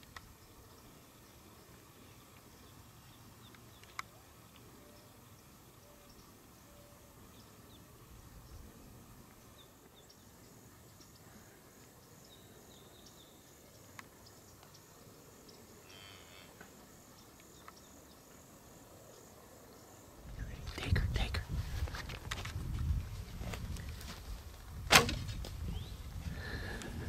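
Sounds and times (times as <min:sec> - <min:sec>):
faint click: 0:03.5 - 0:04.7.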